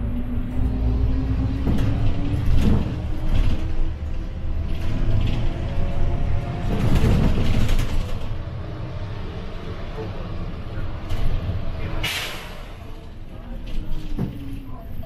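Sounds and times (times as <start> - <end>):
bus body rattling: 0.0 - 15.0
bus engine rumble: 0.0 - 15.0.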